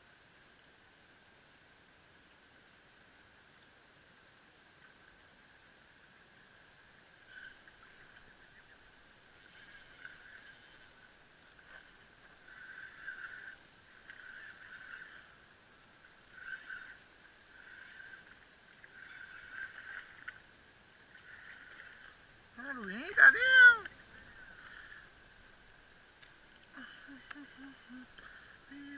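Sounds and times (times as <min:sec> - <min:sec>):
fishing reel whirring: 0:07.1 - 0:25.2.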